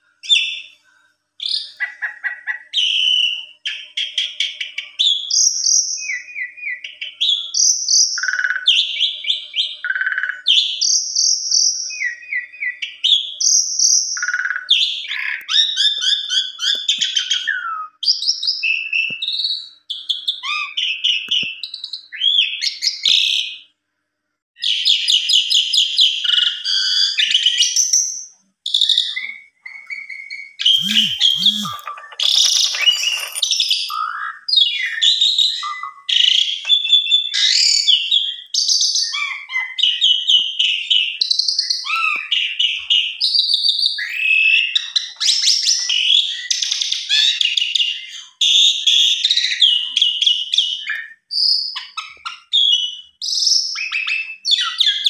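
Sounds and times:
starling singing: 30.1 - 34.9.

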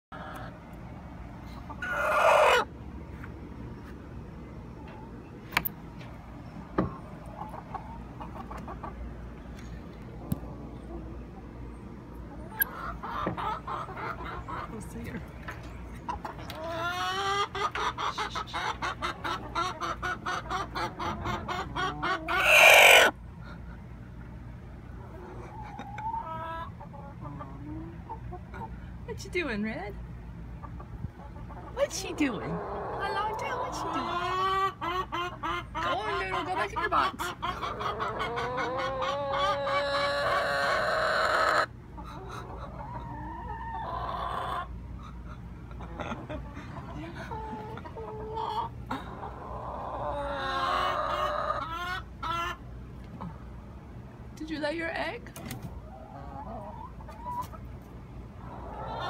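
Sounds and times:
hen clucking: 0.1 - 2.9, 6.0 - 29.0, 30.4 - 59.0
higher-pitched hen call: 1.8 - 2.7, 21.8 - 23.2
hen squawking: 16.6 - 23.2.

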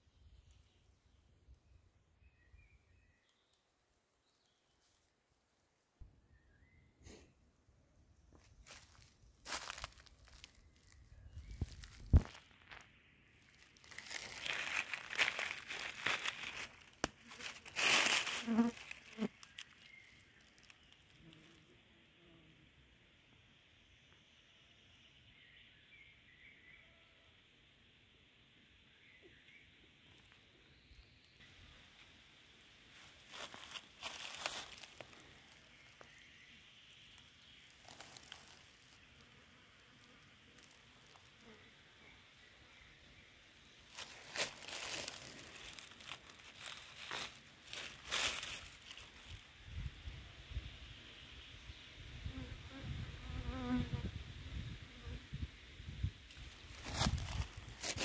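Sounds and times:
dry leaves rustling and crackling: 8.6 - 12.8, 13.4 - 21.2, 32.9 - 36.3, 36.9 - 41.4, 43.9 - 49.5, 56.3 - 58.0.

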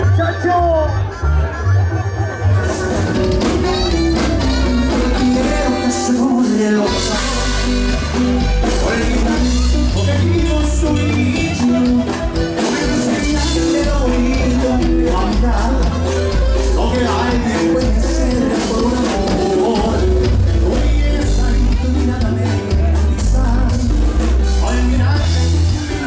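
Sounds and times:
bass: 0.0 - 26.0
drums: 0.0 - 26.0
electric guitar: 0.0 - 26.0
person singing: 1.8 - 26.0.

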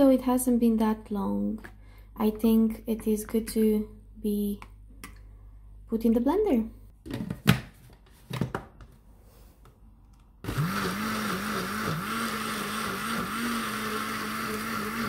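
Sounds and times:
blender motor running: 10.4 - 15.0.

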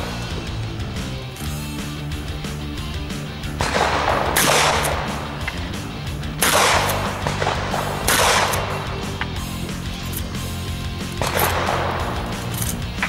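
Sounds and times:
background music: 0.0 - 13.0
shotgun blasts: 3.1 - 10.4, 11.0 - 13.0.

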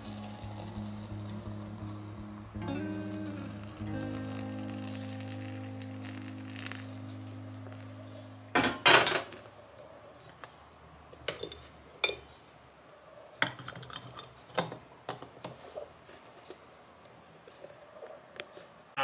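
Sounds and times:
glass and metal clinks: 11.3 - 12.3.

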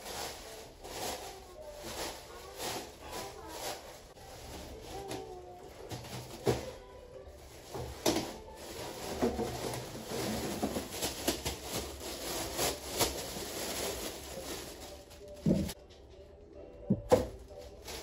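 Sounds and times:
plastic bag rustling: 0.0 - 15.8, 16.9 - 18.0.

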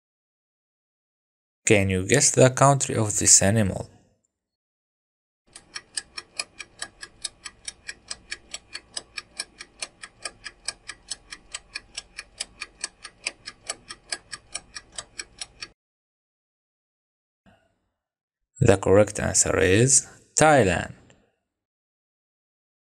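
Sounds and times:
rapid clock ticks: 5.5 - 15.8.

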